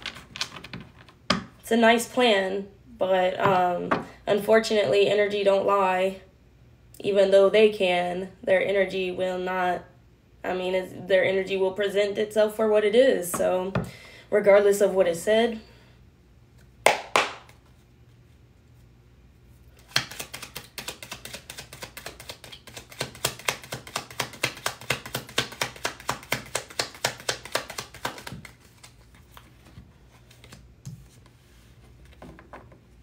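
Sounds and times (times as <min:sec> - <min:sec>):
cards being shuffled: 0:19.8 - 0:32.6.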